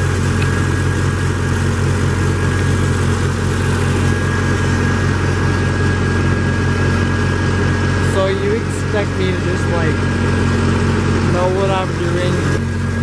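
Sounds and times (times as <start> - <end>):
pickup engine idling: 0.0 - 13.0.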